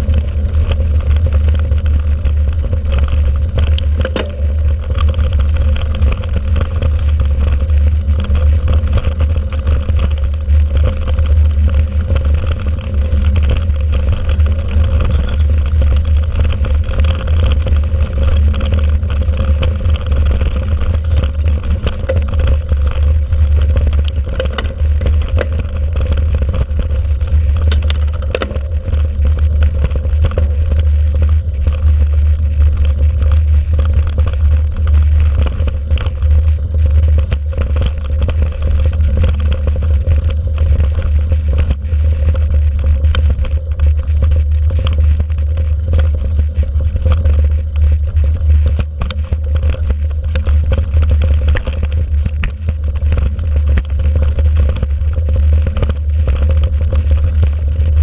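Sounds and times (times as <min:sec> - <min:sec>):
bike rattling and knocking: 0:00.0 - 0:58.0
wind and ground rumble: 0:00.0 - 0:58.0.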